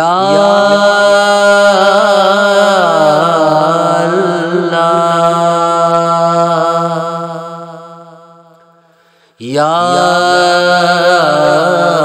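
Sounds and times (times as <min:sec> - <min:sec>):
low drone: 0:00.0 - 0:06.7
person singing devotional song: 0:00.0 - 0:08.4, 0:09.1 - 0:12.0.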